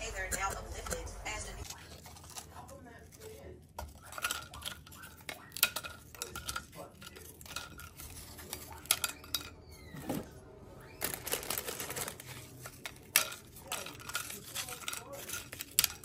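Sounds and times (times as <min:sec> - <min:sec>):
taco shells crunching: 0:01.6 - 0:09.4, 0:10.8 - 0:16.0.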